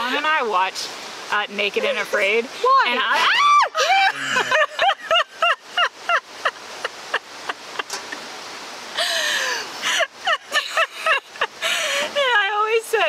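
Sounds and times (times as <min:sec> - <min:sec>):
women laughing hard: 0:03.3 - 0:08.2, 0:09.0 - 0:12.3.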